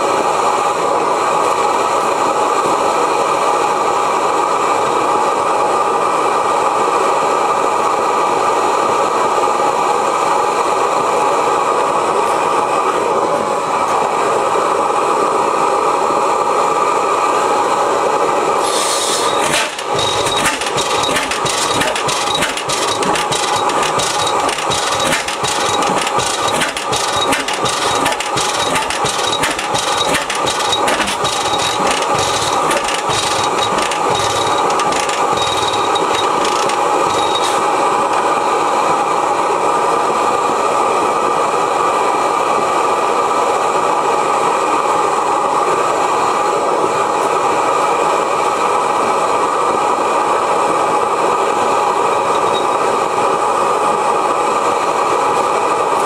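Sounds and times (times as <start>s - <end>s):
propane burner hissing: 18.3s - 38.5s
old engine knocking: 19.4s - 38.2s.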